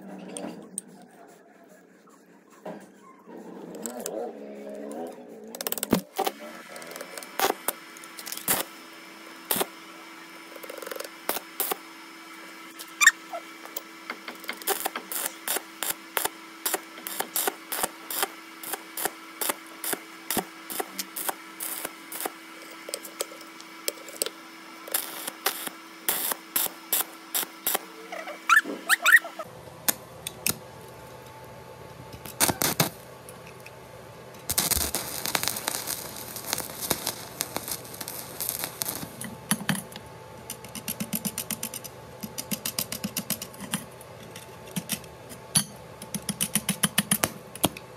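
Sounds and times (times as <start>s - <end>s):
welder hum: 3.7s - 44.0s
welding arc crackling: 5.5s - 11.8s, 12.7s - 30.6s, 32.2s - 33.1s, 34.5s - 39.6s.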